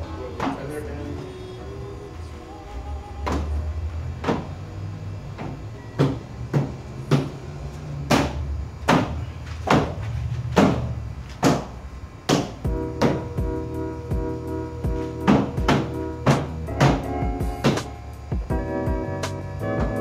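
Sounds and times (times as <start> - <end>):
steady low hum: 0.0 - 20.0
sharp knocks: 4.2 - 4.6, 5.4 - 7.4, 8.0 - 13.4, 15.2 - 18.5.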